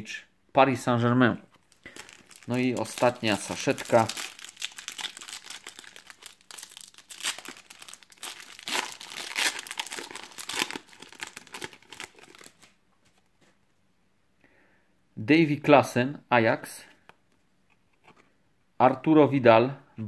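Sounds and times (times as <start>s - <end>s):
foil wrapper tearing and crinkling: 1.7s - 12.7s.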